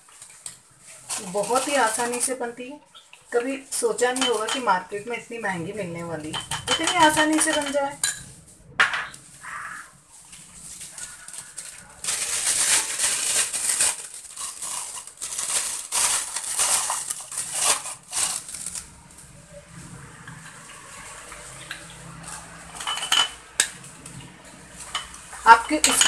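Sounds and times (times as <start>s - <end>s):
plastic bag crinkling: 0.0s - 2.6s, 10.1s - 19.4s.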